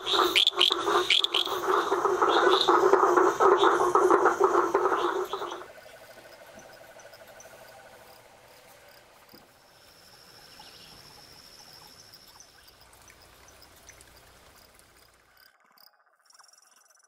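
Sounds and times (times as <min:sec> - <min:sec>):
pulsed trilling call: 0:00.0 - 0:08.2
frogs and insects chorus: 0:00.0 - 0:17.0.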